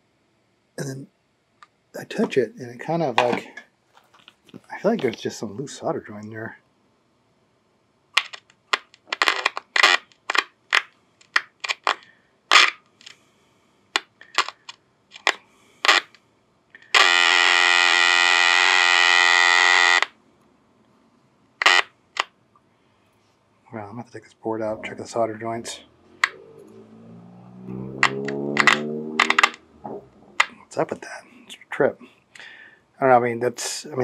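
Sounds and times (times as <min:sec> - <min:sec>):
radio speaker crackling: 0:02.0 - 0:06.4, 0:08.2 - 0:13.2, 0:14.0 - 0:16.2, 0:21.6 - 0:22.3, 0:23.8 - 0:26.7, 0:28.0 - 0:32.5
steady buzzing tone: 0:16.8 - 0:20.2, 0:21.6 - 0:22.0.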